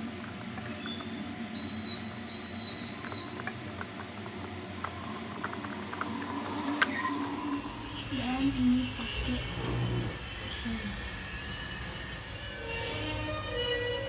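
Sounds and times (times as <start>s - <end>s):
low hum: 0.0s - 13.8s
short high whistle-like tones: 0.8s - 3.4s.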